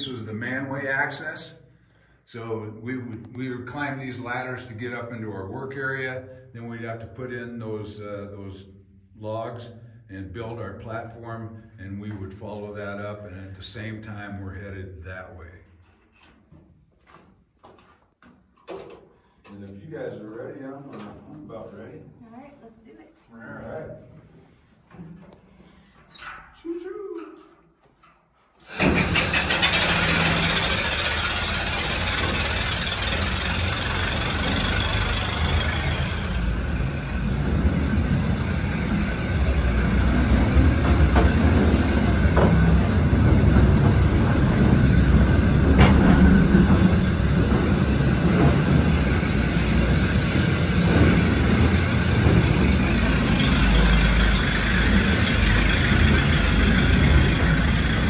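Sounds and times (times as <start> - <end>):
train rumbling and clattering on rails: 31.4 - 58.0.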